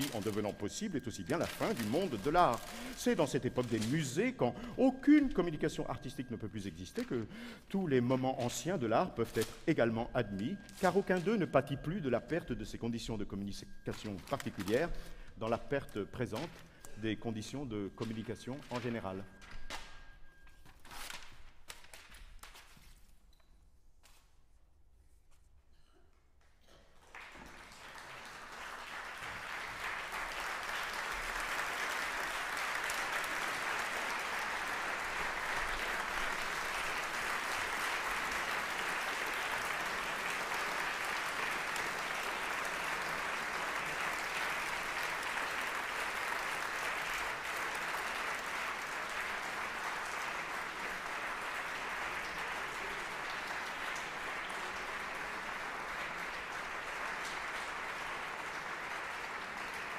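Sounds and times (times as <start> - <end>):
audience applauding: 0.0 - 7.5, 27.0 - 59.9.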